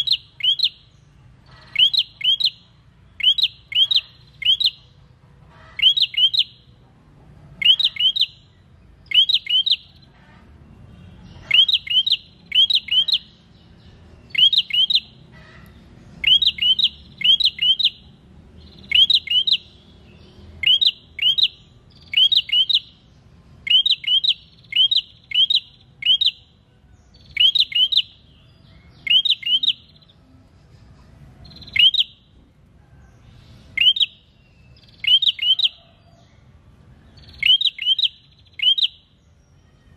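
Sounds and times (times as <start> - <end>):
bird chirping: 0.0 - 6.8, 7.5 - 39.9.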